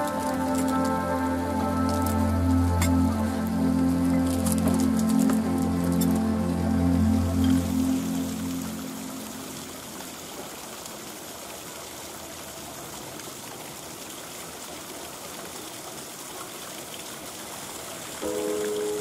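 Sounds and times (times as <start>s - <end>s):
piano-like music: 0.0s - 10.2s, 18.2s - 19.0s
rushing water: 0.0s - 19.0s.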